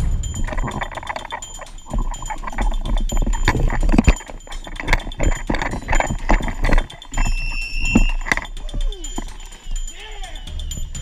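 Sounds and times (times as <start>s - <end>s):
footsteps and gear clattering: 0.0s - 11.0s
high whistle-like tone: 6.7s - 11.0s.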